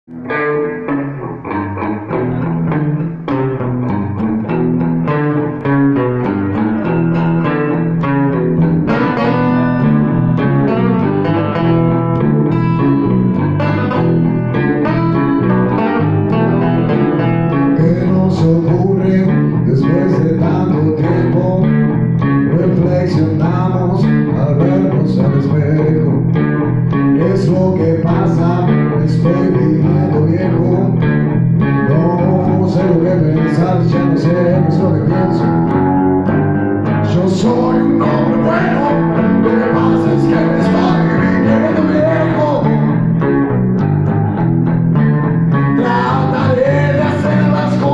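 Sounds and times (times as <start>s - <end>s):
electric bass guitar: 0.0s - 47.9s
second guitar: 0.0s - 47.9s
acoustic guitar: 0.1s - 47.9s
man singing into microphone: 17.7s - 26.3s, 27.1s - 31.0s, 31.8s - 35.7s, 37.0s - 43.0s, 45.7s - 47.9s.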